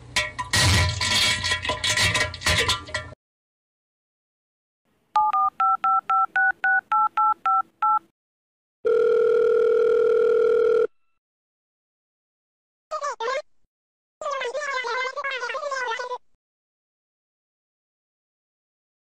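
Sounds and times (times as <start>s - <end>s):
touch-tone keypad beeps: 5.2s - 8.0s
phone ringing tone: 8.8s - 11.2s.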